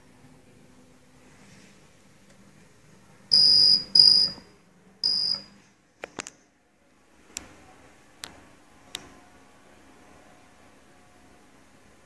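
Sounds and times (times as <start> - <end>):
lift call button beeping: 3.3 - 5.5.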